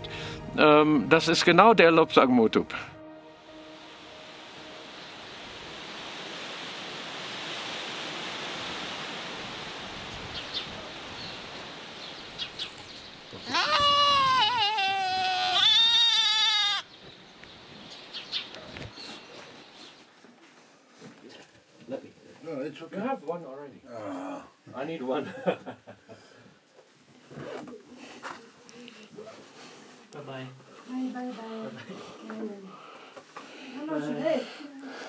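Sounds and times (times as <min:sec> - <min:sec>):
stream of flowing water: 0:03.7 - 0:15.0
goat bleating: 0:13.4 - 0:16.9.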